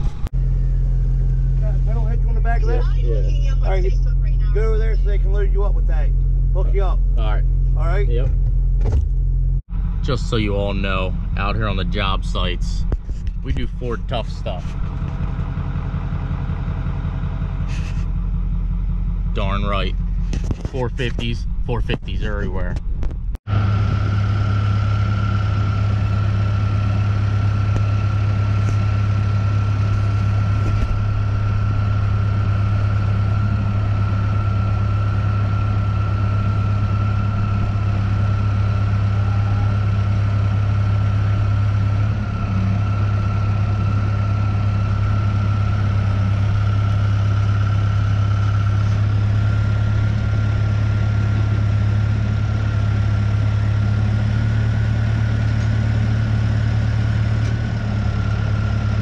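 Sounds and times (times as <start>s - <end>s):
diesel engine idling: 0.0s - 59.0s.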